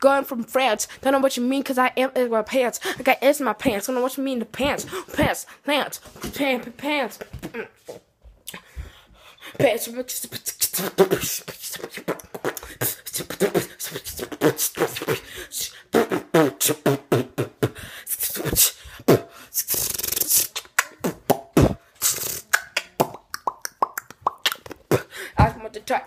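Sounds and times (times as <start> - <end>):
person beatboxing: 9.5 - 25.7.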